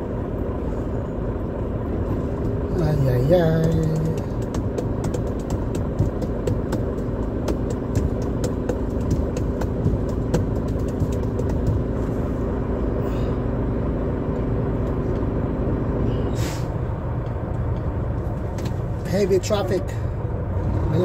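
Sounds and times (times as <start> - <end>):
diesel engine low rumble: 0.0 - 21.0
ticks and rattles: 2.3 - 12.1
short hiss: 16.4 - 16.7.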